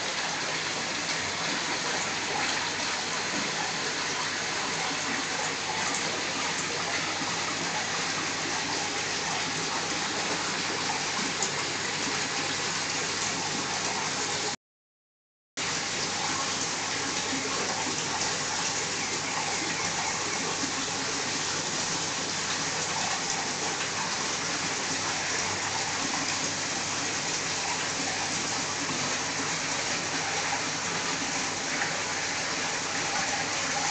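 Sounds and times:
running splashing water: 0.0s - 14.6s, 15.6s - 33.9s.

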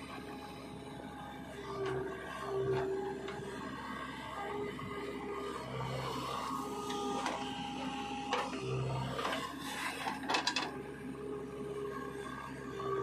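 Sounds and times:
backhoe loader engine running: 0.0s - 13.0s
rattle of metal clanks: 10.1s - 10.8s.

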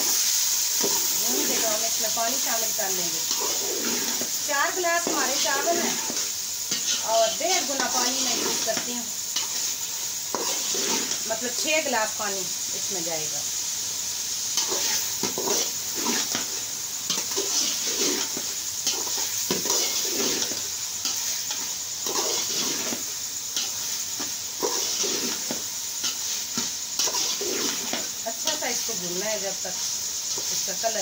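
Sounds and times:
hot oil sizzling: 0.0s - 31.0s
metal spoon scraping a pot: 3.2s - 11.3s, 14.6s - 28.6s.

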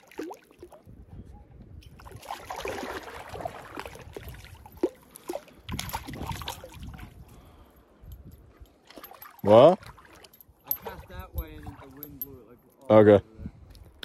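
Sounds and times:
fish splashing in shallow water: 0.0s - 0.9s, 1.9s - 7.2s, 8.8s - 10.3s.

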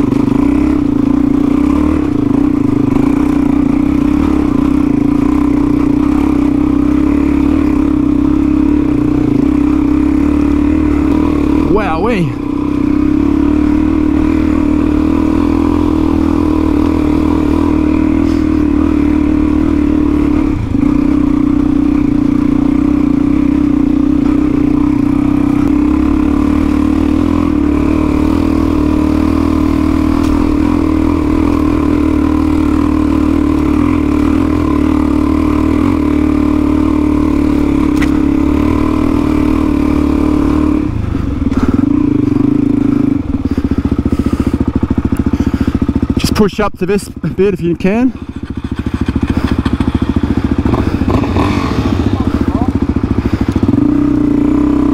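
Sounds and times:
motorcycle engine pulling under load: 25.1s - 46.4s, 47.2s - 54.9s.

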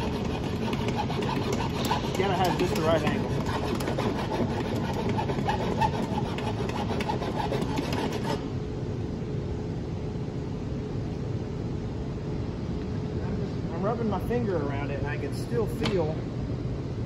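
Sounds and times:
hand file rasping on metal: 0.0s - 8.5s
steady low hum: 0.0s - 17.0s.

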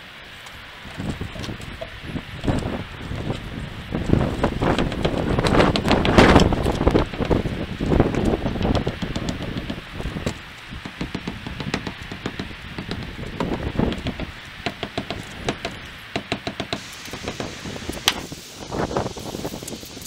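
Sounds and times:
hammer tapping on metal drift: 8.2s - 18.2s.

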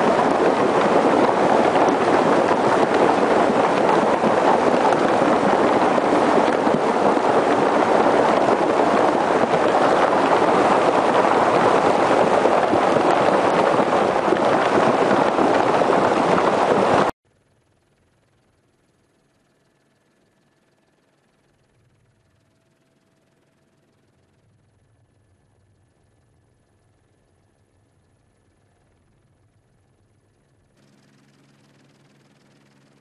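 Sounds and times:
floodwater rushing roar: 0.0s - 17.1s.

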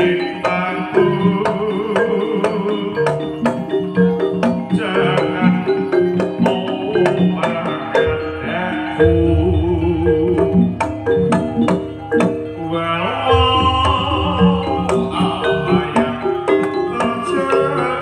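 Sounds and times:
ringing metallophone notes: 0.0s - 18.0s
wavering melody line: 0.0s - 18.0s
hand drum strokes: 3.4s - 12.5s
deep held tone: 8.0s - 16.0s.

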